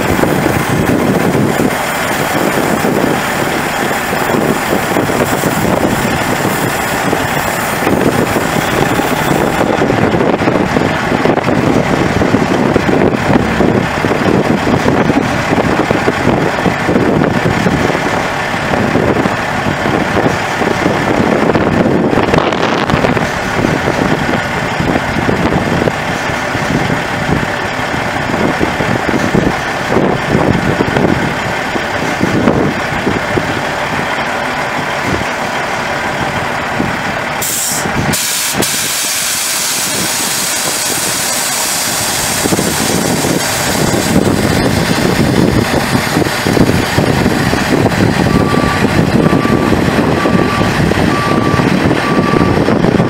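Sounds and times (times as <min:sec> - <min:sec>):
diesel truck engine running: 0:00.0 - 0:53.0
sudden hiss: 0:37.4 - 0:43.7
backup alarm beeping: 0:48.2 - 0:52.6.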